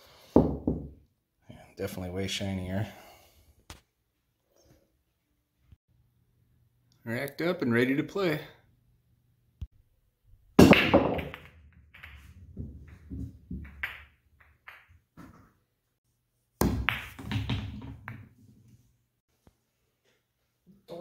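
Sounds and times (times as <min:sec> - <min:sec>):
cue ball cracking into racked balls: 0:10.6 - 0:15.4, 0:16.6 - 0:18.4
pool balls clacking: 0:10.6 - 0:15.6, 0:16.6 - 0:18.4.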